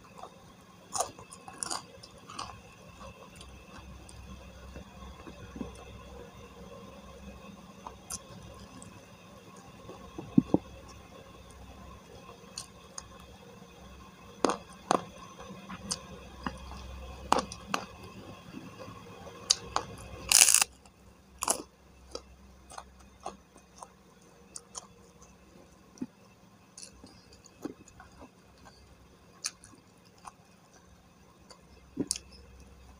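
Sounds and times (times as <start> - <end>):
chewing with crunches: 0.0 - 6.2, 14.4 - 26.2, 26.8 - 32.7.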